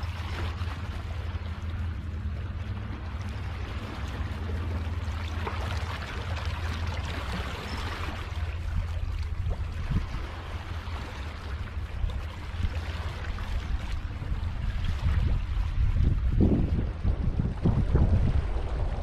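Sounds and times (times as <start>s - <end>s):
small waves breaking: 0.0s - 19.0s
wind rumble on microphone: 0.0s - 19.0s
seawater washing over rocks: 12.1s - 19.0s.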